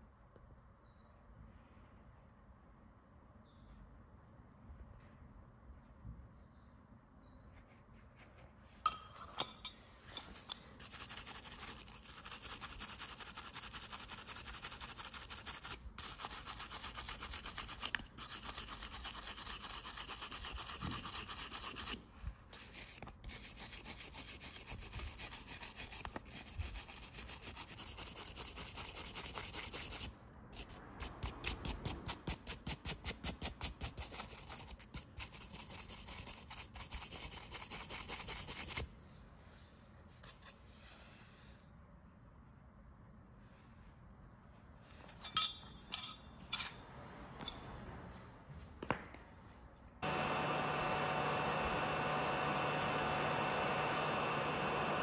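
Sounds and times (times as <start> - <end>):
rubbing strokes on small object: 10.4 - 38.8.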